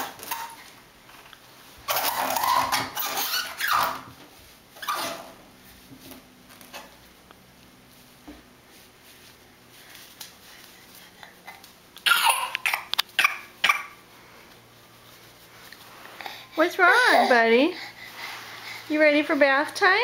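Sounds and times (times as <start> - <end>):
baby laughing: 12.0 - 14.0.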